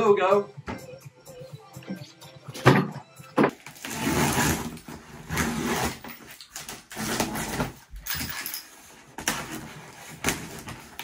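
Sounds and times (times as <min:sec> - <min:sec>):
box cutter slitting tape: 0:03.6 - 0:07.8.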